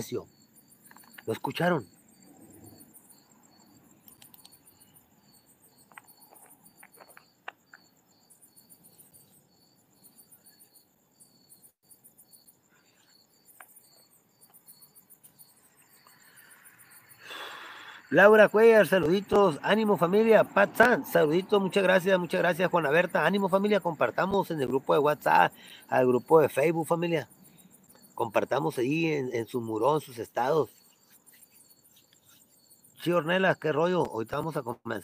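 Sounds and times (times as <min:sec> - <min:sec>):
crickets chirping: 0:00.0 - 0:35.0
faint clicks: 0:04.0 - 0:04.6.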